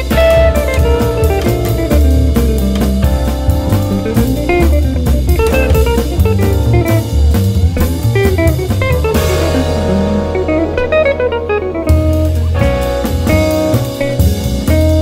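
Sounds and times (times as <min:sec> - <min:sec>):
guitar-led music with drums: 0:00.0 - 0:15.0.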